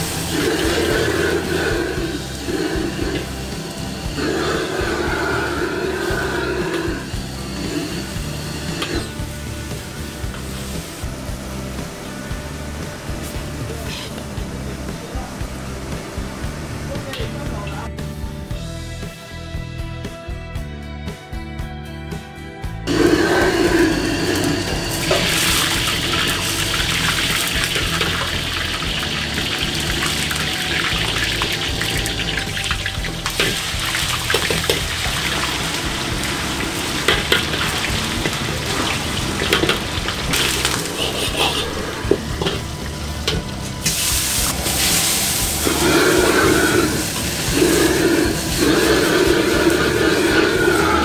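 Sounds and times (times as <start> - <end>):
oil sizzling in a wok: 0.0 - 18.5, 22.9 - 51.0
water running from tap: 22.9 - 51.0.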